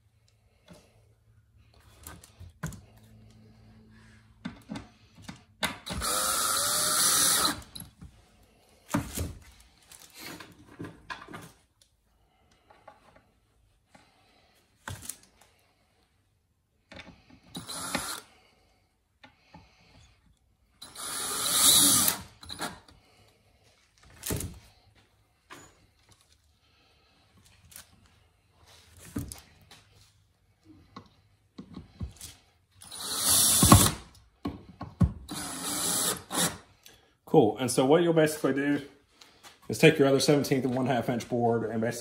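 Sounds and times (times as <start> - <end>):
cordless drill motor running: 5.8 - 7.8, 17.6 - 18.3, 20.8 - 22.7, 32.8 - 34.0, 35.3 - 36.6.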